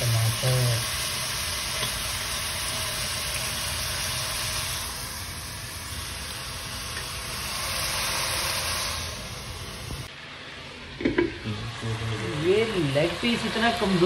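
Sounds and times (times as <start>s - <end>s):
food sizzling in oily pot: 0.0s - 10.1s.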